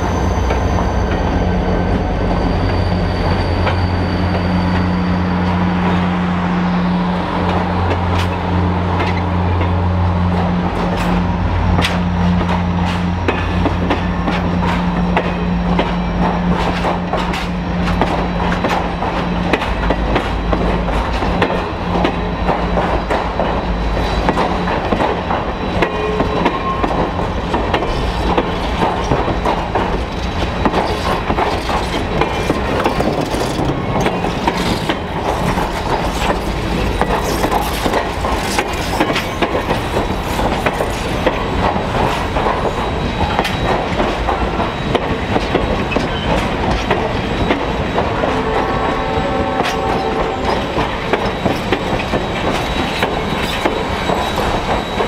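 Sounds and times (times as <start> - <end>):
diesel locomotive engine drone: 0.0 - 55.0
faint wheel squeal: 1.9 - 5.5
train wheels clicking over rail joints: 7.4 - 55.0.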